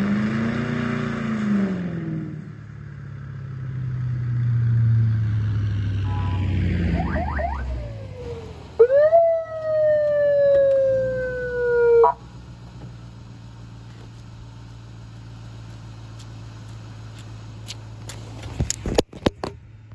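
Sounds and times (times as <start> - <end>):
car engine idling: 2.4 - 18.8
police siren wailing: 6.0 - 12.3
footsteps on asphalt: 12.1 - 19.4.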